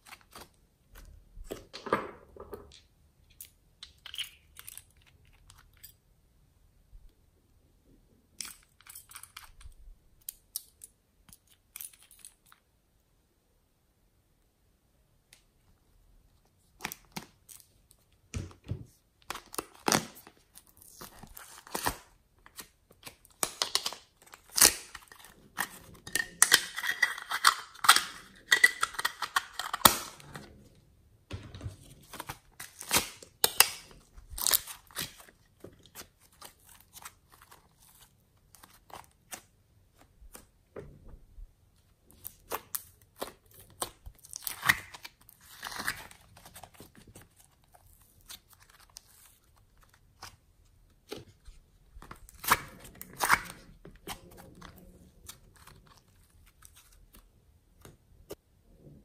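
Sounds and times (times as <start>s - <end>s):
sticky clay tearing: 42.2s - 50.4s, 51.0s - 57.9s.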